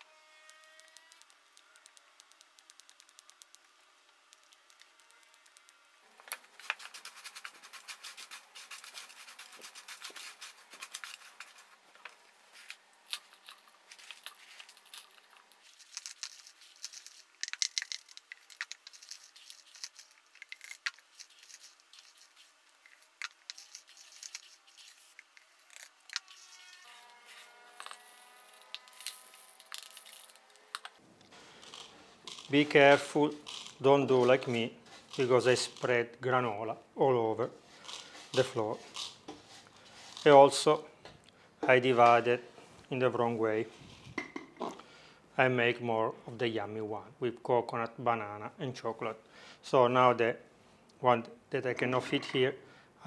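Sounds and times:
dry granola crackling and rattling: 13.0 - 26.5, 27.8 - 30.7, 31.4 - 35.9, 37.8 - 39.2.

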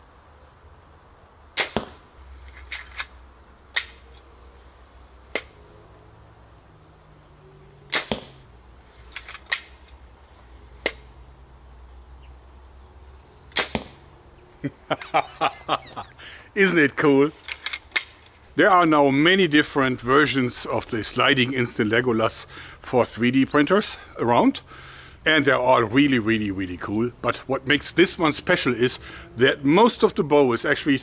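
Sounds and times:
bow release snap and crack: 2.7 - 4.3, 5.3 - 5.6, 7.9 - 8.4, 13.5 - 14.0.

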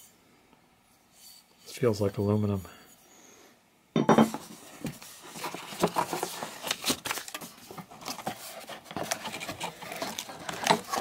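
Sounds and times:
cardboard rustling and scraping: 4.3 - 11.0.

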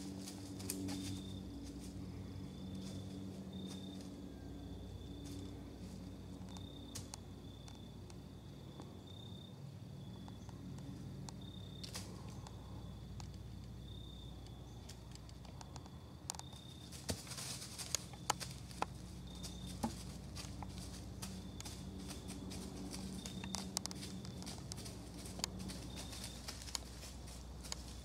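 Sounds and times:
crunches in dry leaf litter: 16.7 - 28.0.

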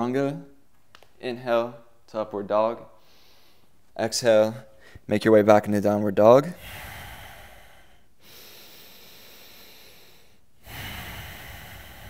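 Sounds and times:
man breathing deeply: 3.0 - 3.8, 6.6 - 12.0.

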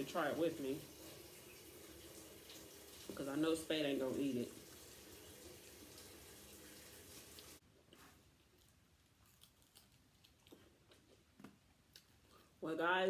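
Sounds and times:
faint chewing of crispy food: 7.7 - 12.6.

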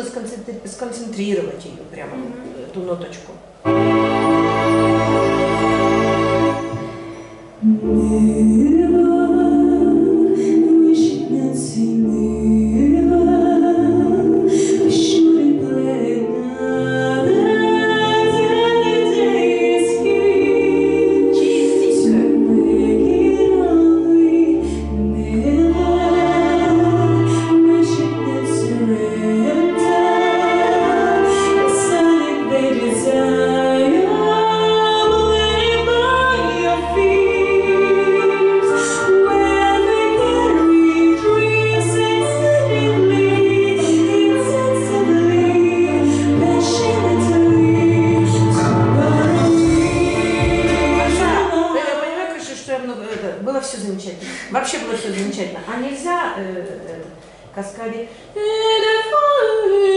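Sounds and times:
woman singing: 7.6 - 53.3, 58.0 - 59.9.

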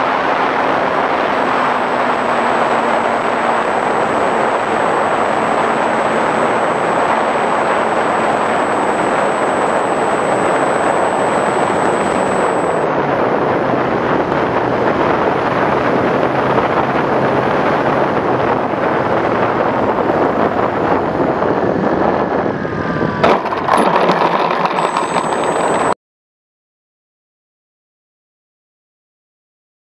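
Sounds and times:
air rushing over camera: 3.2 - 13.8
thin high steady tone: 7.6 - 12.8, 23.7 - 26.0.

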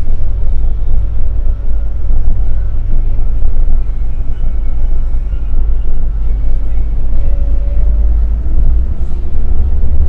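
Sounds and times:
bus engine and road noise: 0.0 - 10.0.

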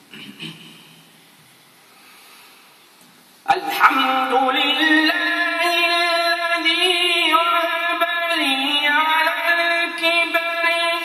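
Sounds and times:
man reciting melodically: 3.5 - 11.0.

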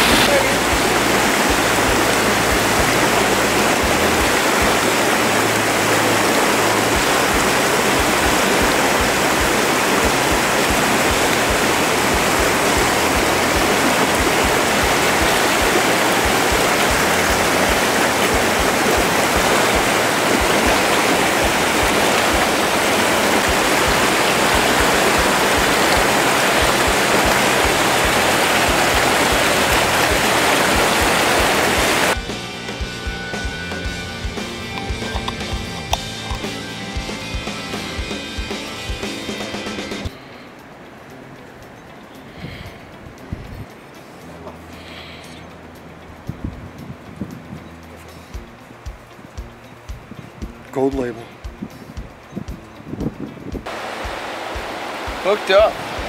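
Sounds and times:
river rushing over rocks: 0.0 - 32.2, 53.6 - 56.0.

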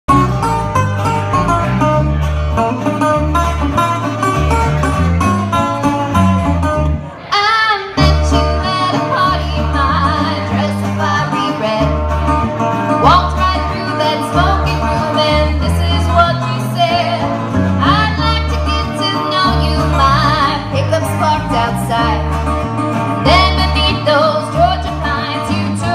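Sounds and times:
steady bass line: 0.1 - 7.2, 8.0 - 25.9
banjo: 0.1 - 25.9
guitar: 0.1 - 25.9
person singing: 7.2 - 12.1, 13.0 - 22.3.

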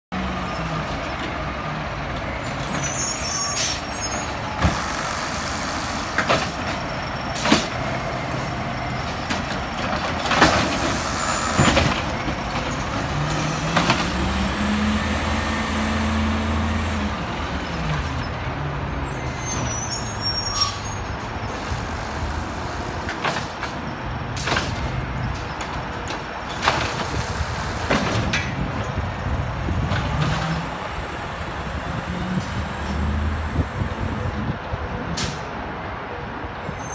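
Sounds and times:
air brake hisses: 3.0 - 6.2
garbage truck engine revving: 10.0 - 18.1.

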